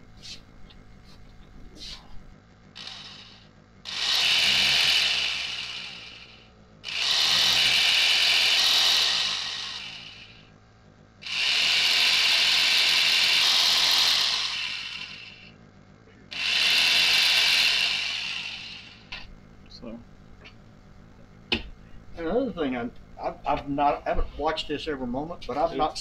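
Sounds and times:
electric jigsaw running: 2.8s - 10.5s, 11.2s - 15.5s, 16.3s - 19.3s.

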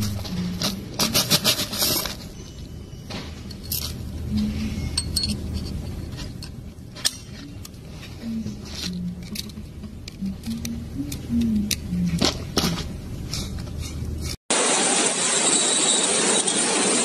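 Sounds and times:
steel balls clinking together: 3.5s - 7.8s.

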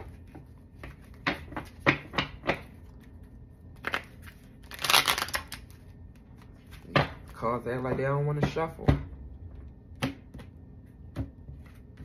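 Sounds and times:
cards being shuffled: 2.8s - 6.9s.

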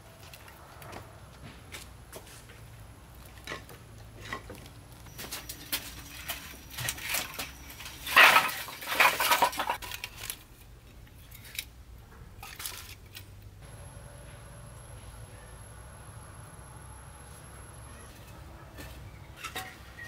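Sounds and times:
hard objects clattering and clinking: 3.3s - 10.4s, 18.3s - 20.0s.

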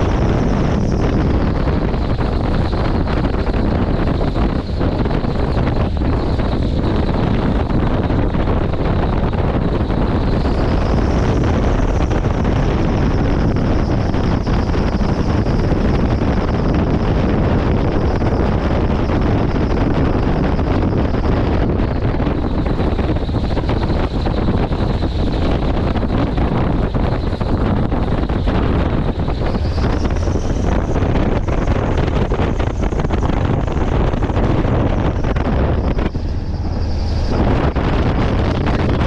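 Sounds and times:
mechanical drone: 0.0s - 39.0s
thin high whine: 0.0s - 39.0s
wind buffeting microphone: 0.0s - 39.0s.

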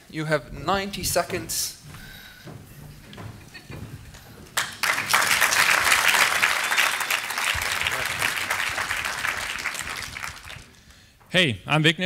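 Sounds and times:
audience applauding: 4.4s - 10.9s.

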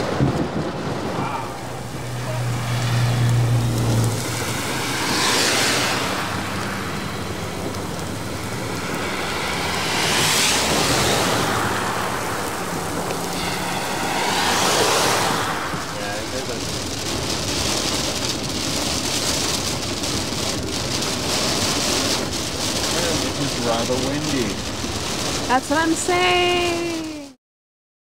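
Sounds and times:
heavy rain: 0.0s - 27.4s
vehicles swishing on wet road: 0.0s - 27.4s.

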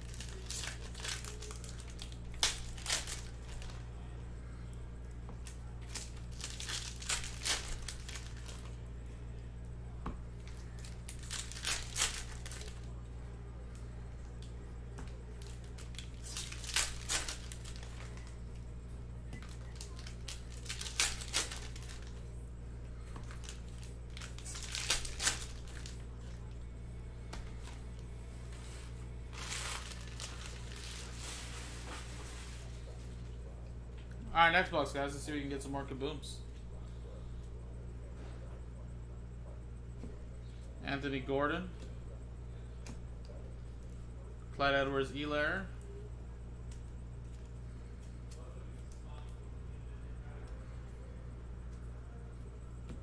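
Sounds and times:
card wrappers tearing and crinkling: 0.0s - 3.8s, 5.4s - 8.8s, 10.4s - 12.9s, 15.3s - 18.4s, 19.4s - 22.2s, 23.2s - 26.4s, 29.2s - 32.7s
steady low hum: 0.0s - 53.0s.

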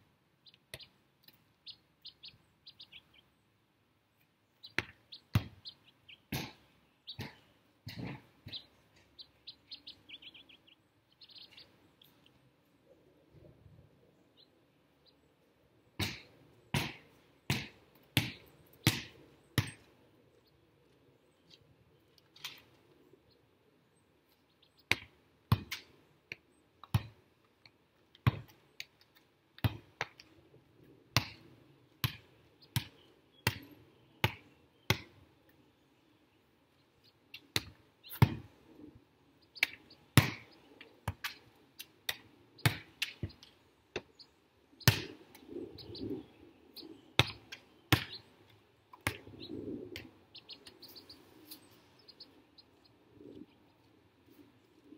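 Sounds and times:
volleyball slaps: 16.0s - 19.8s, 32.0s - 32.2s, 37.6s - 38.5s, 39.6s - 41.4s, 42.1s - 43.3s, 44.8s - 45.2s, 47.2s - 48.2s.

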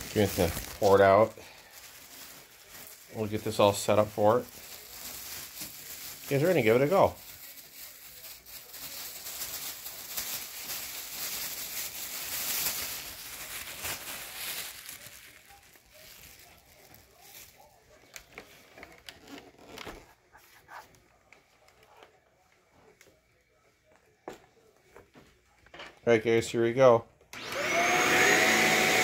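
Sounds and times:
plastic bag crinkling: 0.0s - 20.1s.

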